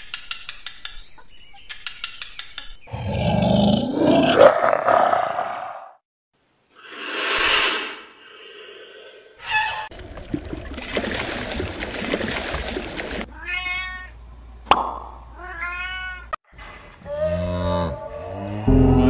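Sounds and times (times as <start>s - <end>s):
animal hissing: 6.8s - 9.4s
meow-like cries: 13.3s - 14.2s, 15.4s - 16.3s.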